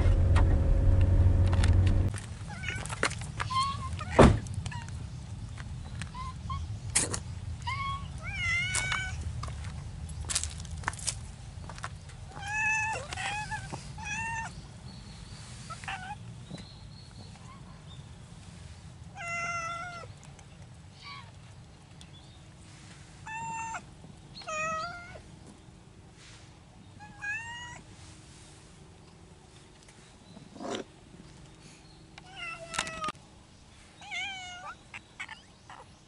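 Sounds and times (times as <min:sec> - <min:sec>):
steady low rumble: 0:00.0 - 0:02.5
cats meowing: 0:07.6 - 0:09.2, 0:12.3 - 0:14.6, 0:19.2 - 0:20.2, 0:23.3 - 0:25.2.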